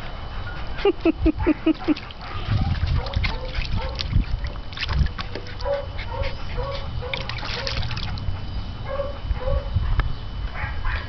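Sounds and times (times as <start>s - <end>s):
dog splashing in water: 1.8s - 5.9s, 6.9s - 8.4s.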